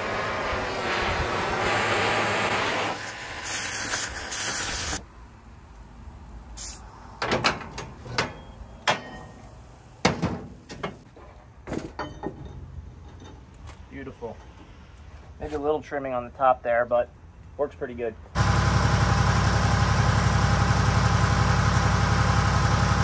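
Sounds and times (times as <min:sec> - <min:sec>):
cutting torch hissing: 0:00.0 - 0:05.0
metal clanks and knocks: 0:07.2 - 0:14.7.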